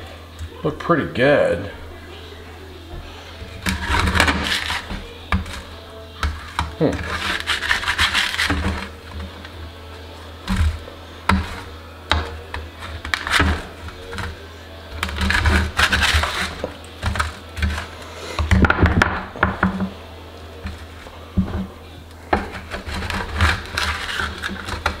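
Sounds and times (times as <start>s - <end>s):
spatula scraping metal baking sheet: 3.1s - 9.6s, 10.4s - 18.6s, 22.3s - 25.0s.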